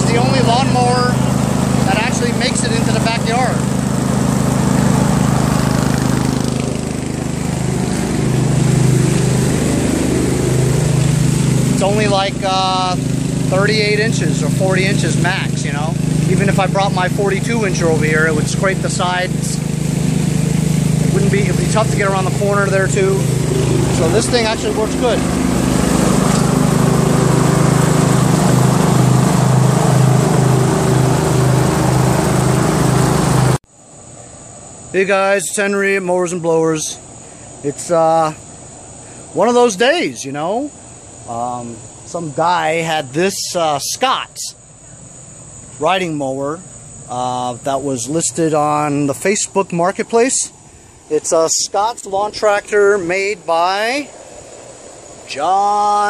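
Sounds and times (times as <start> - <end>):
mower engine running: 0.0 - 33.7, 45.2 - 56.0.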